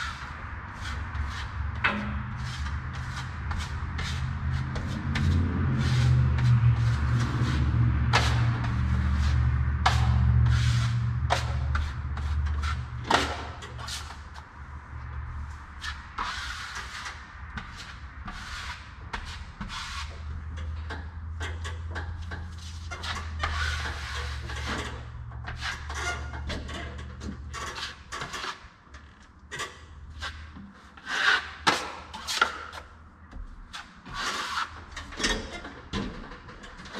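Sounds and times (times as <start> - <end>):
taping knife scraping: 0.0 - 14.2, 15.8 - 20.2, 33.8 - 35.2.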